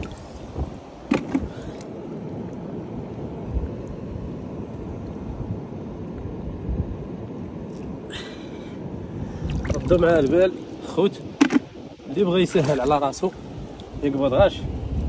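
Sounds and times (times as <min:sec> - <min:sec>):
steady low rumble: 0:08.9 - 0:15.0
water splashing and dripping: 0:09.4 - 0:11.7.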